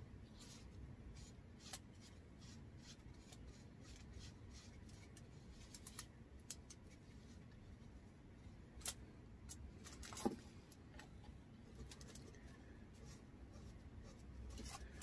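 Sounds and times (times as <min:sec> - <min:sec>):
paintbrush scratchy strokes: 0:00.4 - 0:05.7, 0:12.4 - 0:15.0.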